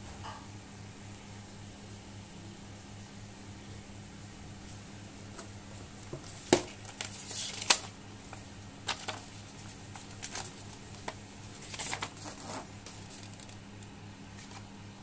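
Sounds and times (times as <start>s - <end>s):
steady low hum: 0.0s - 15.0s
paper rustling and crackling: 5.4s - 14.7s.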